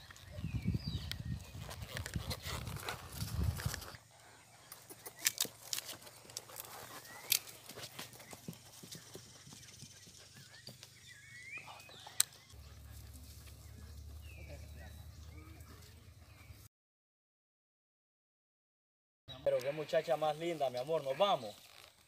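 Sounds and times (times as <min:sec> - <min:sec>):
mule hoofbeats on dirt: 0:00.0 - 0:04.0, 0:04.6 - 0:16.6.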